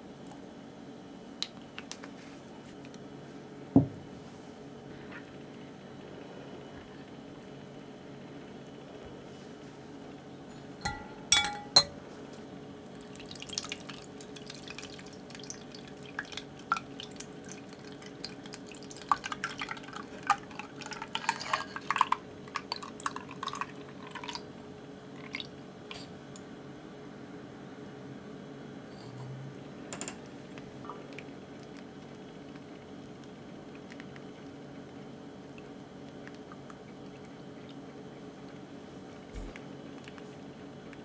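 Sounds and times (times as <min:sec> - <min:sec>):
glass clinks: 0:10.6 - 0:12.0
liquid poured through strainer: 0:12.9 - 0:24.4.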